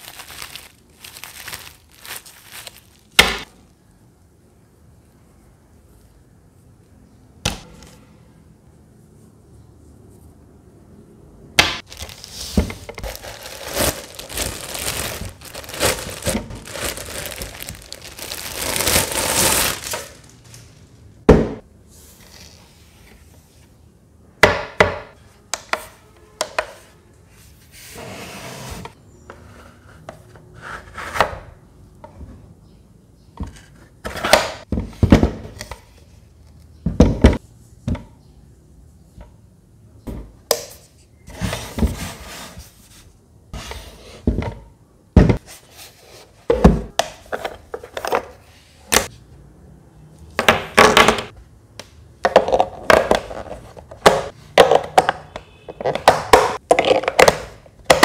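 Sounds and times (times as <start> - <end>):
plastic wrapping crinkling: 0.0 - 3.2, 11.8 - 21.0.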